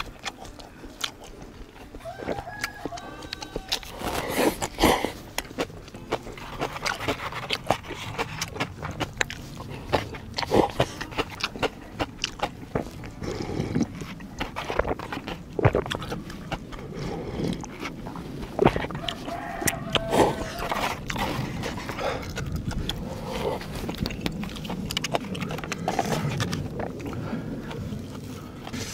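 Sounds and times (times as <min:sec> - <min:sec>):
person slurping noodles: 0:03.9 - 0:05.3, 0:13.2 - 0:14.8.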